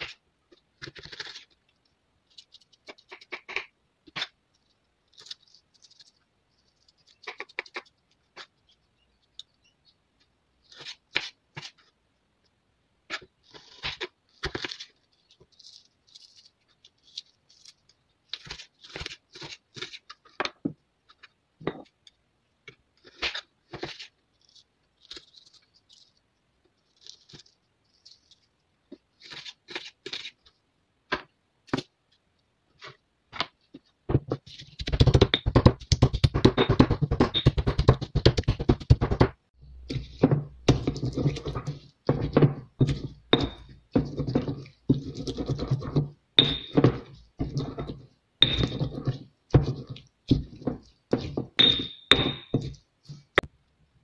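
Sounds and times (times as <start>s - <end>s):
knife slicing and scraping: 36.4s - 53.5s.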